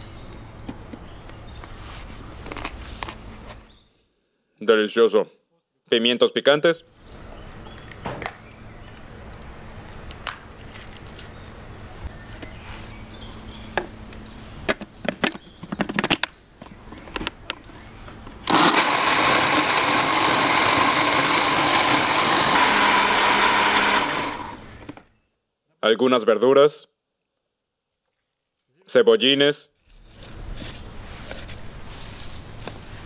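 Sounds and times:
blender running: 18.4 - 24.7.

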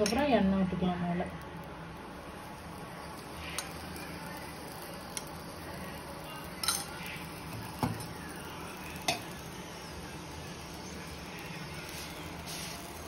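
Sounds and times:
steady low hum: 0.0 - 13.0
metal utensil clinking on iron pan: 6.6 - 7.0.

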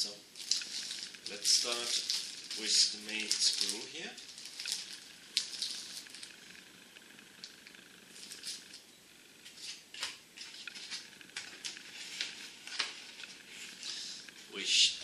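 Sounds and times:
plastic bag crinkling: 0.3 - 6.4, 7.4 - 8.8.

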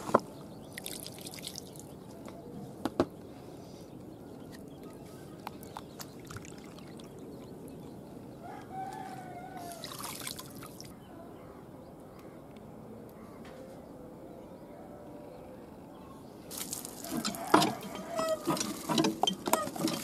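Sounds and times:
water splashing and pouring: 0.8 - 1.8, 6.1 - 7.1, 9.8 - 10.9, 16.5 - 20.0
rooster crowing: 8.4 - 10.0, 17.0 - 19.8.

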